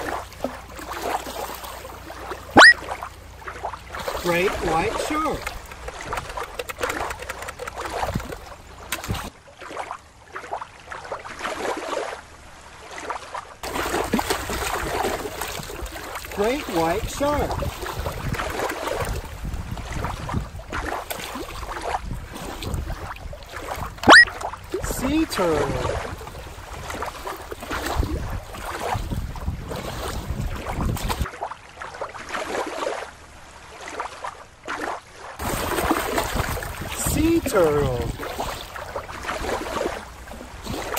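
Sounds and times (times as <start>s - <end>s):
small clicky splashes: 0.0s - 12.1s, 13.0s - 16.6s, 17.3s - 24.6s
river water rippling over rocks: 0.0s - 40.9s
wind rumbling on microphone: 3.9s - 9.3s, 13.9s - 31.3s, 35.4s - 40.9s.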